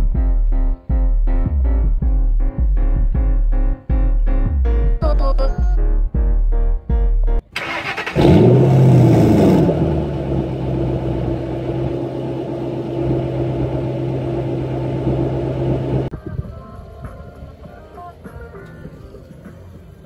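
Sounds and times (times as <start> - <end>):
car engine starting and idling: 7.5 - 16.1.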